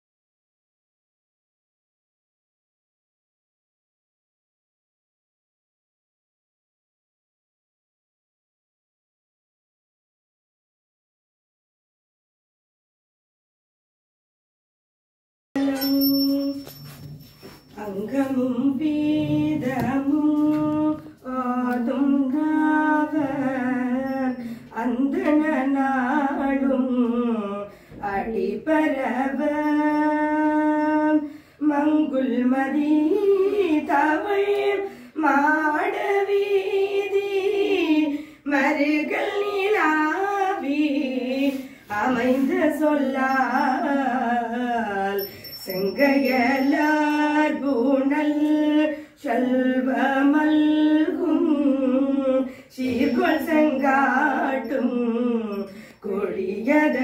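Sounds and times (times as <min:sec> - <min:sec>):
woman singing hymn unaccompanied: 0:17.8 - 0:57.0
breaths between phrases: 0:55.7 - 0:56.0.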